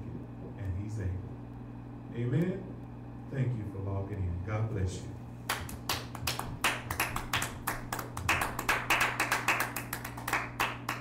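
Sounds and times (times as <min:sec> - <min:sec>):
people clapping: 0:05.4 - 0:11.0.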